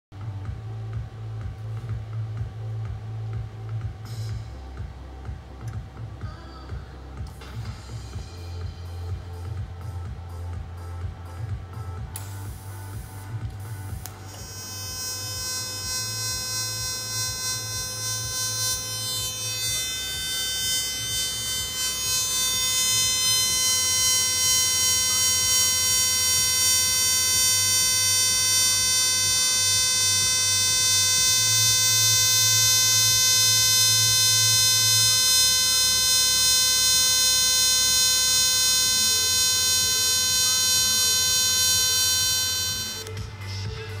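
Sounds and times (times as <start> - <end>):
welding arc buzzing: 10.9 - 44.0.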